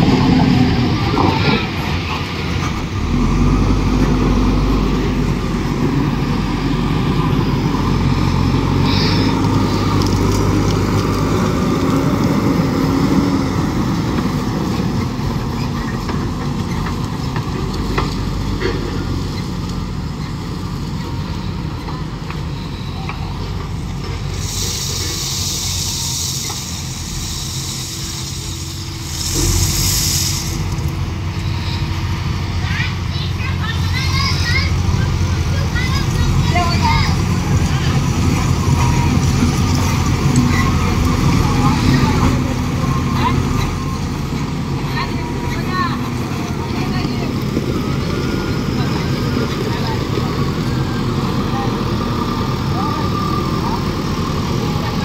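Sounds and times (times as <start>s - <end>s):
diesel engine running: 0.0s - 55.0s
tyres on gravel: 0.0s - 55.0s
hissing: 23.8s - 32.5s.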